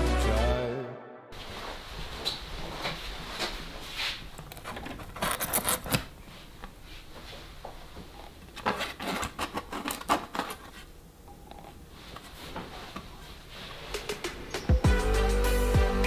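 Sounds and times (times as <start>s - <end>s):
plastic panel handling noises: 4.3s - 6.2s, 8.3s - 13.1s.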